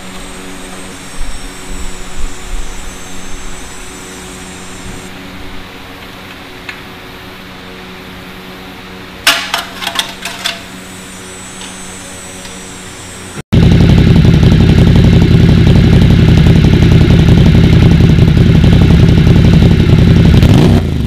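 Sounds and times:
steady low hum: 0:00.0 - 0:20.5
metal hand tools clanking: 0:09.2 - 0:10.8.

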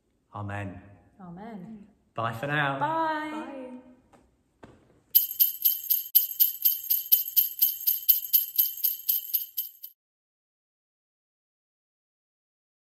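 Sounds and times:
sleigh bells jingling: 0:05.2 - 0:10.0.

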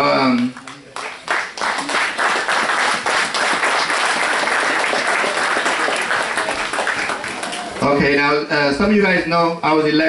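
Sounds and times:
audience applauding: 0:00.3 - 0:07.9.

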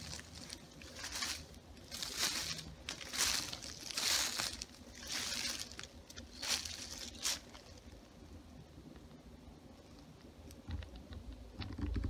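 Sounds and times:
footsteps crunching through dry leaves: 0:00.0 - 0:08.1.

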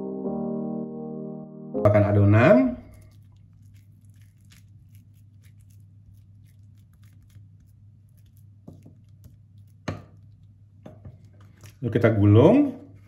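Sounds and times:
low steady hum: 0:00.0 - 0:13.0
spoon scraping paste on leaf: 0:02.8 - 0:10.5.

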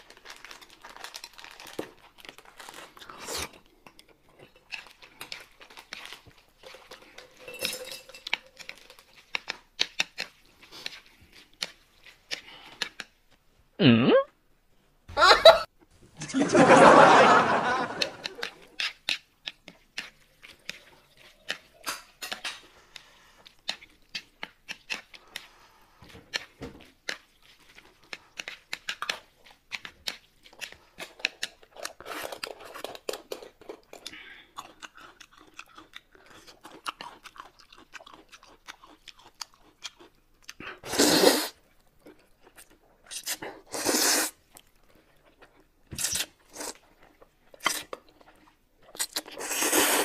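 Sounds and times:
chewing with mouth clicks: 0:00.0 - 0:07.5, 0:08.2 - 0:13.3, 0:18.0 - 0:40.8, 0:41.4 - 0:50.0
noodle slurp: 0:40.8 - 0:41.6, 0:43.1 - 0:44.4, 0:45.9 - 0:50.0.

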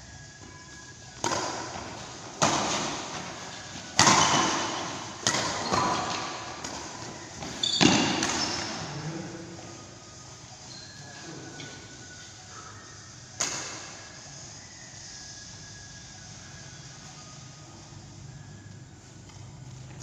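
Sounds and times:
badminton racket smacking shuttlecock: 0:04.0 - 0:07.0.

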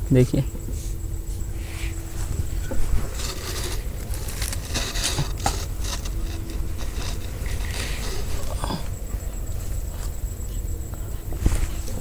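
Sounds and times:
dry leaves and twigs rustling: 0:01.4 - 0:10.5.

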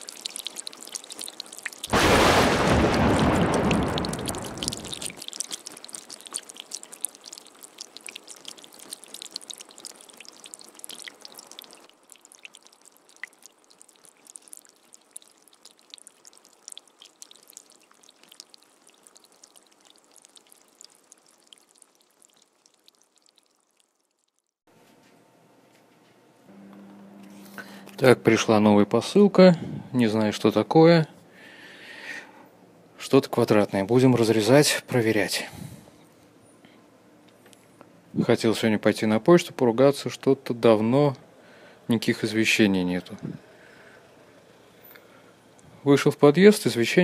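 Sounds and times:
loud burst: 0:01.9 - 0:05.2.

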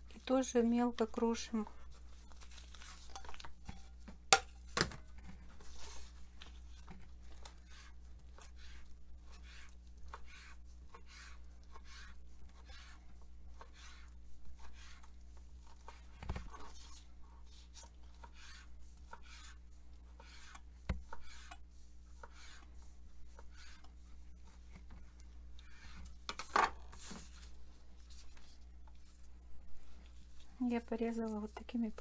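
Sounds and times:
knife scraping on cutting board: 0:07.4 - 0:17.0, 0:17.6 - 0:21.6, 0:22.2 - 0:22.7, 0:23.3 - 0:24.0.

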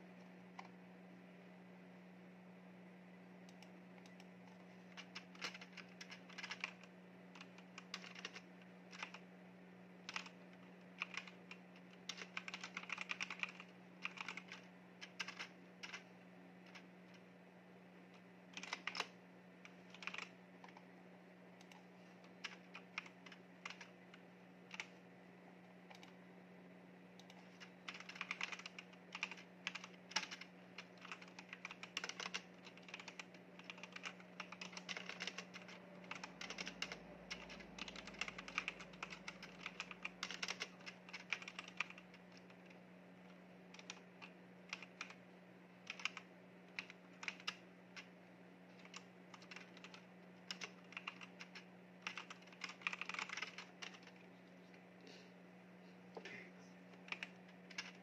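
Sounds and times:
typing on mechanical keyboard: 0:03.5 - 0:09.2, 0:10.0 - 0:16.1, 0:18.5 - 0:20.8, 0:21.6 - 0:24.0, 0:24.7 - 0:24.9, 0:25.9 - 0:26.1, 0:27.2 - 0:42.8, 0:43.7 - 0:45.2, 0:45.8 - 0:48.1, 0:48.8 - 0:54.2, 0:57.0 - 0:58.0.

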